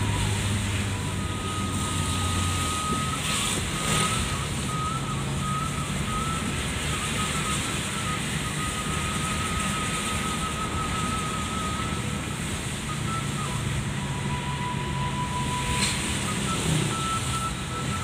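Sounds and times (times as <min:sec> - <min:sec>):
windscreen wipers swishing: 0:00.0 - 0:14.4
engine hum: 0:00.0 - 0:18.0.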